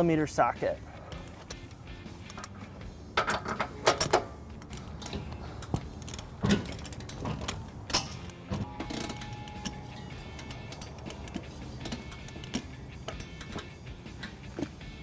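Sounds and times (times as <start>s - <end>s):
ratchet wrench clicking: 3.2s - 14.5s.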